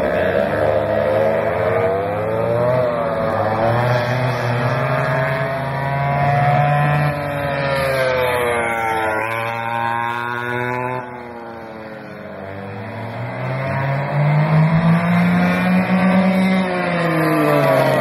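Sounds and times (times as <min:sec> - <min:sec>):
two-stroke kart engines revving: 0:00.0 - 0:18.0.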